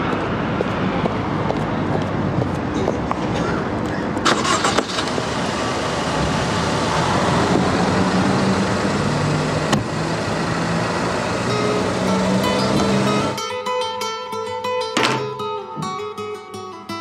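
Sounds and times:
street noise: 0:00.0 - 0:17.0
car engine idling: 0:03.8 - 0:13.4.

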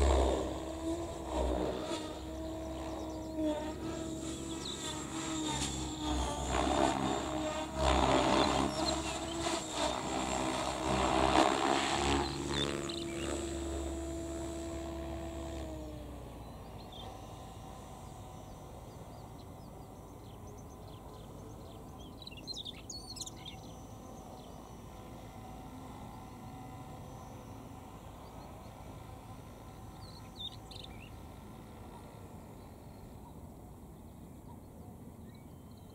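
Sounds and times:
engine drone passing: 0:00.0 - 0:34.6
bird singing: 0:02.1 - 0:06.2, 0:07.2 - 0:10.5, 0:12.0 - 0:13.8, 0:16.3 - 0:17.2, 0:18.1 - 0:24.8, 0:29.7 - 0:35.9.

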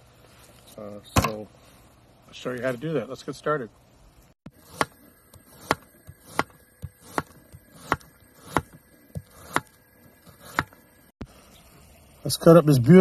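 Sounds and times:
knife chopping on cutting board: 0:04.6 - 0:10.8.

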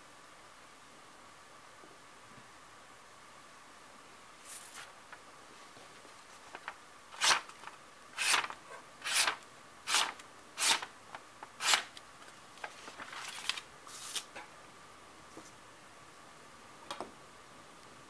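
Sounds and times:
knife slicing paper: 0:07.1 - 0:07.6, 0:08.2 - 0:10.9, 0:11.6 - 0:12.0, 0:12.7 - 0:14.3.

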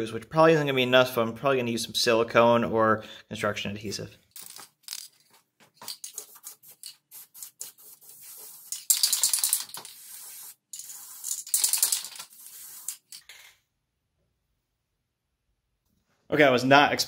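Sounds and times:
spray can ball rattling: 0:04.4 - 0:13.4
spray can hissing: 0:06.0 - 0:13.2.

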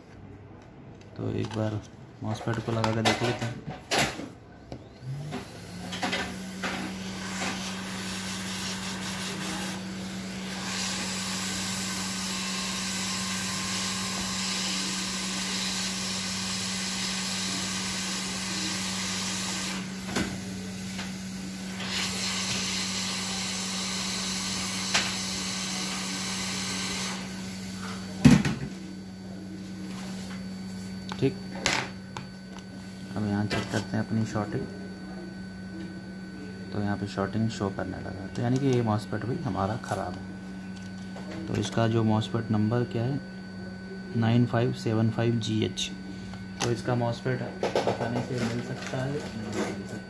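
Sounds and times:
hot-air gun hissing: 0:06.1 - 0:28.1.

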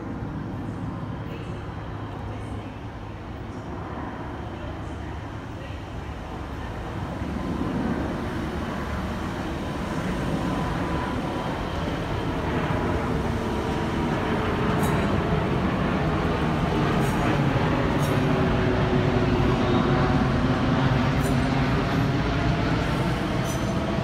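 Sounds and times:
electric train running noise: 0:08.2 - 0:24.0.

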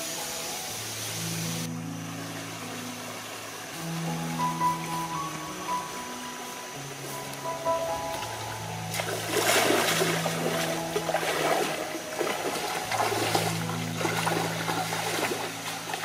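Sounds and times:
background music: 0:00.0 - 0:16.0
feet splashing through stream: 0:02.0 - 0:16.0.

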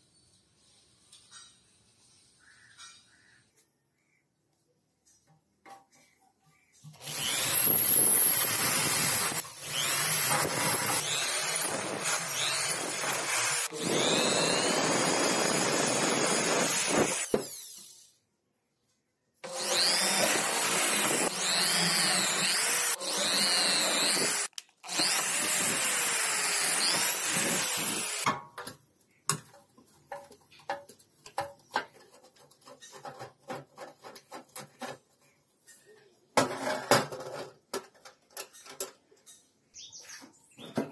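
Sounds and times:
power tool running under load: 0:07.0 - 0:17.6, 0:19.4 - 0:28.3.

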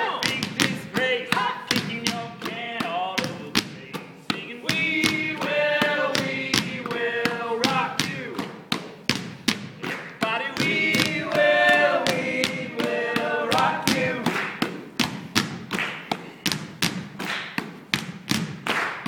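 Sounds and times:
voices singing held notes: 0:00.0 - 0:08.5, 0:09.8 - 0:14.8
basketballs bouncing on stage floor: 0:00.0 - 0:19.0.

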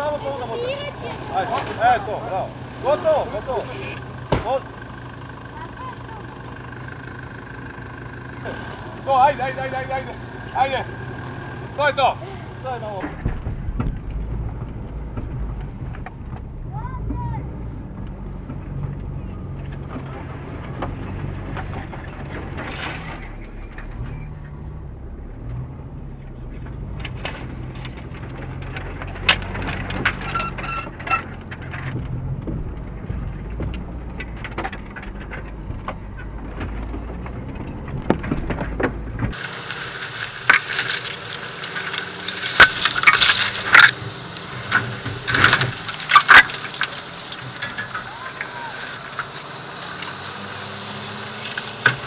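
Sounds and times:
knocks and rattles: 0:00.0 - 0:39.4, 0:40.3 - 0:50.2
off-road vehicle engine drone: 0:00.0 - 0:52.0
rapid sharp knocks and scraping: 0:26.6 - 0:50.4.

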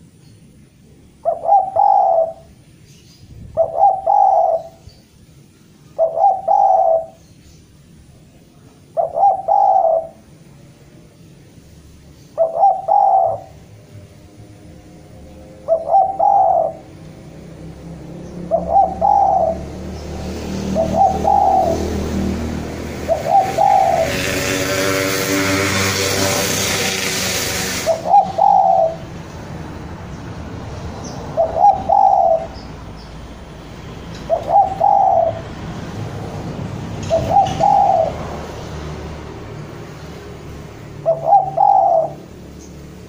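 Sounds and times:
dove cooing: 0:01.2 - 0:02.5, 0:03.6 - 0:04.8, 0:05.9 - 0:07.2, 0:08.9 - 0:10.3, 0:12.4 - 0:13.6, 0:15.6 - 0:17.0, 0:18.4 - 0:19.9, 0:20.6 - 0:29.2, 0:31.3 - 0:32.6, 0:34.2 - 0:35.5, 0:37.0 - 0:38.4, 0:41.0 - 0:42.3
rushing noise: 0:11.8 - 0:43.0.

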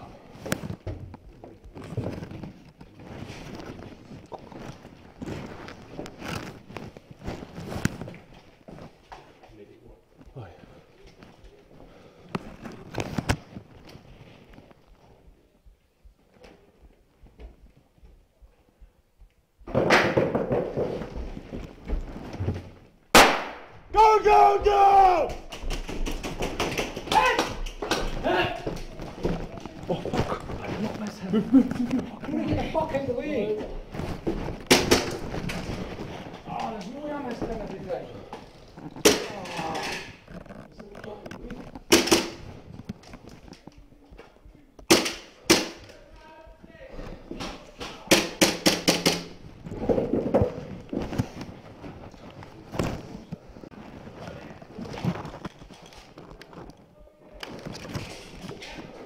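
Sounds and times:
loud bangs echoing in stairwell: 0:23.1 - 0:28.8, 0:44.9 - 0:45.9
airsoft gun shots echoing: 0:23.2 - 0:23.7
person shouting high: 0:23.9 - 0:25.4, 0:27.1 - 0:27.6.

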